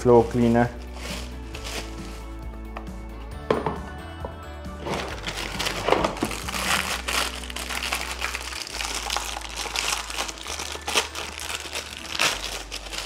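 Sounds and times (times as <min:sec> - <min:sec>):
plastic bag crinkling: 0:00.9 - 0:02.2, 0:04.8 - 0:13.0.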